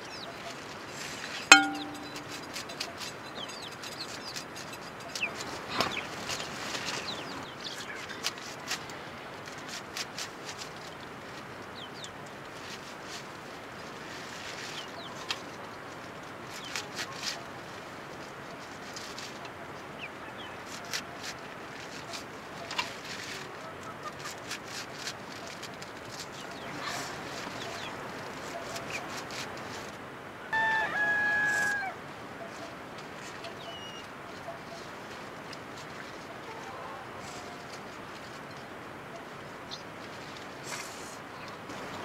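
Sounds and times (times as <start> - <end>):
small birds peeping: 0.0 - 0.7, 1.5 - 8.4, 19.9 - 20.8, 26.2 - 29.2, 32.4 - 34.9
leaves being cut and handled: 1.0 - 7.1, 8.0 - 11.4, 16.4 - 19.6, 20.6 - 29.9
sickle blade cutting leaves: 20.7 - 29.9
rooster crowing: 30.5 - 32.0.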